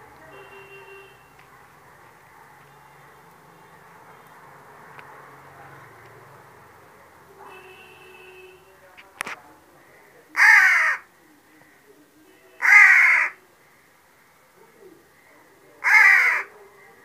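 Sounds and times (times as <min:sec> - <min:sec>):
crow cawing: 0:10.4 - 0:11.1, 0:12.6 - 0:13.4, 0:15.8 - 0:16.5.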